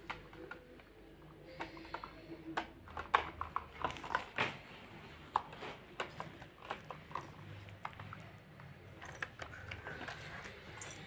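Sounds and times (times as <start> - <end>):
toys clicking and tapping: 0.0 - 4.3.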